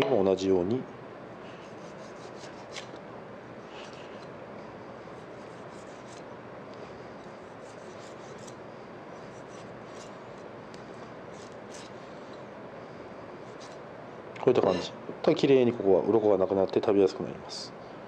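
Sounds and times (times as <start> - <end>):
steady background hiss: 0.0 - 18.0
knife scraping fish scales: 1.6 - 3.0, 5.1 - 6.3, 7.0 - 10.5, 11.3 - 12.4, 13.4 - 13.8.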